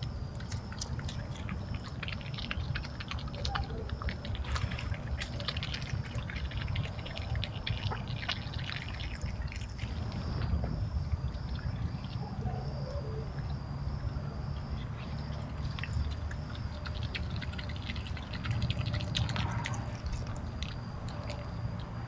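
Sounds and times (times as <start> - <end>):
animal chewing and crunching food: 0.0 - 22.0
steady low hum: 0.0 - 22.0.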